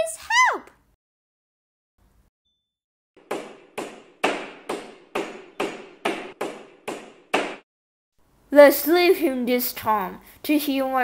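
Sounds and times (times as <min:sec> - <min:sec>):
sharp knocks: 0:03.2 - 0:07.7.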